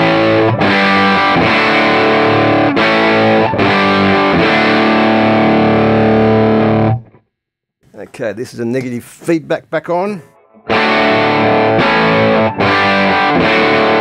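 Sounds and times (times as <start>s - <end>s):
distorted electric guitar chords: 0.0s - 7.2s, 10.2s - 14.0s.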